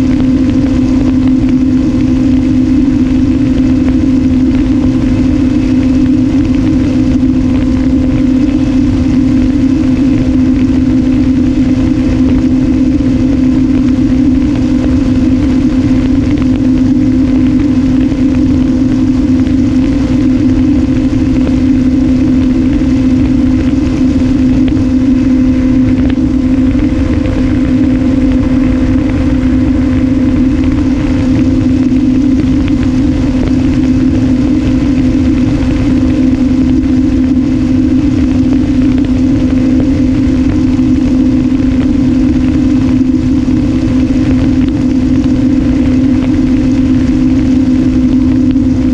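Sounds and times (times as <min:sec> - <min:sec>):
wind rumbling on microphone: 0:00.0 - 0:48.9.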